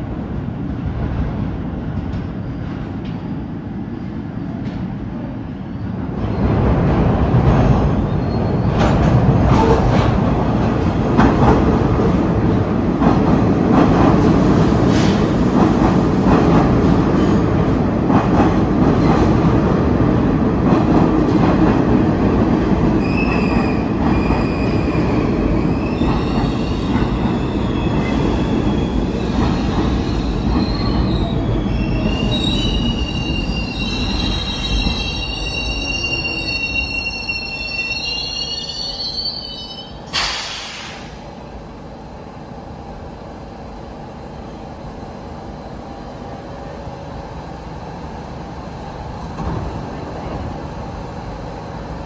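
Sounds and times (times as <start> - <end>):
subway train rumbling: 0.0 - 52.0
high brake squeals: 30.0 - 41.1.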